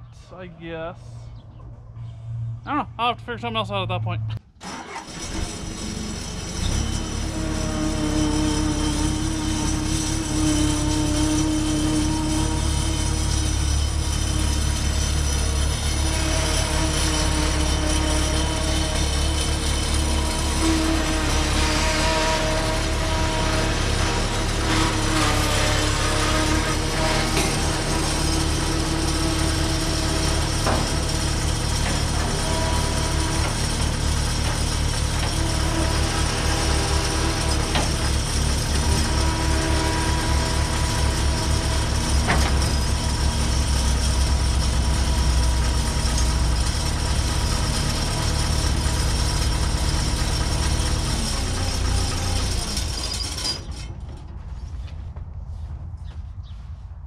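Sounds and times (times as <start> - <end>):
diesel engine running under load: 0.0 - 55.8.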